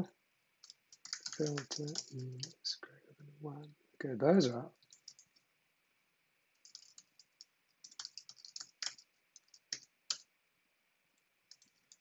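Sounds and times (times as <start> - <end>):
typing on computer keyboard: 0.6 - 2.6, 4.8 - 5.4, 6.6 - 10.3, 11.5 - 12.0.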